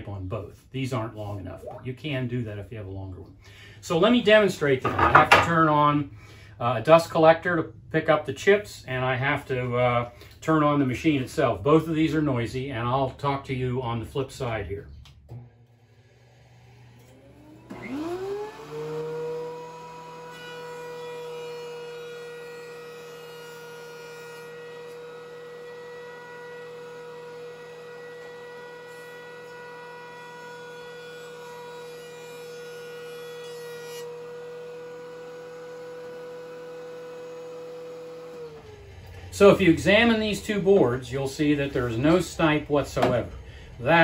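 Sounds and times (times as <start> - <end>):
boards being planed: 4.8 - 5.7, 17.7 - 44.0
thickness planer whine: 15.0 - 44.0
dust collector motor: 15.3 - 23.8, 24.4 - 44.0.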